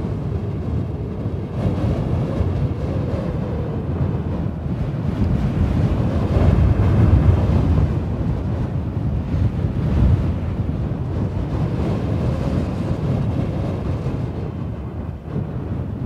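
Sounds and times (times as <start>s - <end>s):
strong wind blowing: 0.0s - 16.0s.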